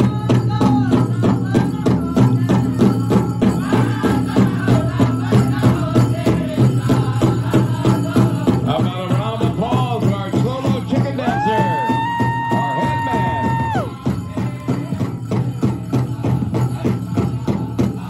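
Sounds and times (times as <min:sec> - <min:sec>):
high chanting voices: 0:00.2 - 0:18.0
hand drum beating: 0:10.0 - 0:15.8.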